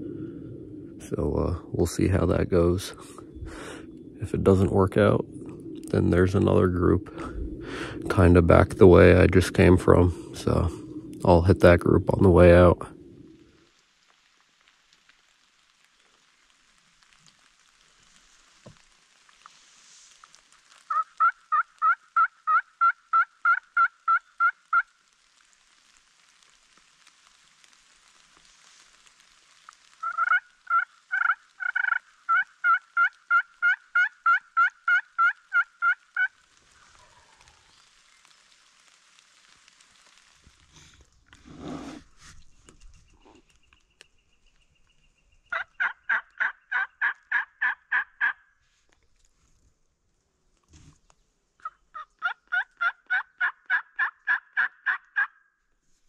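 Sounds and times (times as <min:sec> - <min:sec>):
wild turkey yelping: 0:20.9 - 0:24.9, 0:29.8 - 0:37.7, 0:45.5 - 0:48.4, 0:51.6 - 0:55.4
rustle or thump: 0:50.6 - 0:51.1.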